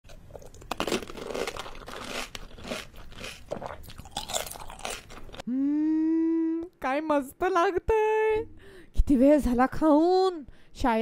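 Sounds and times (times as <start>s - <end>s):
crunching crisp shells: 0.3s - 5.4s
person humming mmm: 5.4s - 6.8s.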